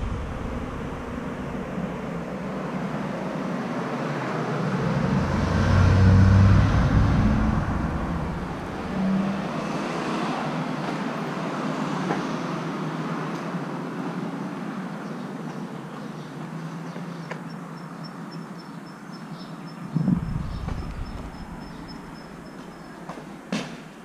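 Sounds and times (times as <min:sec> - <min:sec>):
vehicle engine hum passing close: 0:00.0 - 0:13.6, 0:19.7 - 0:23.4
road traffic going by: 0:00.0 - 0:24.0.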